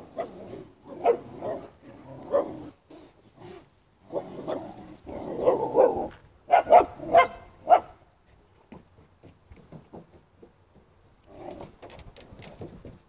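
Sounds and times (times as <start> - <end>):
dog barking loudly: 0.1 - 2.6, 5.3 - 8.0.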